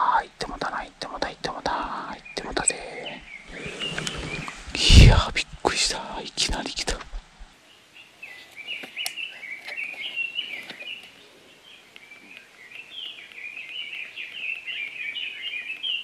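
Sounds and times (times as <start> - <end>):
songbird twittering song: 0.4 - 4.8, 7.6 - 16.0.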